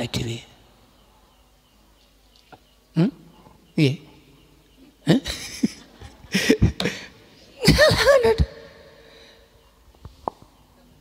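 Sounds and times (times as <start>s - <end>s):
man laughing: 5.1s - 8.9s.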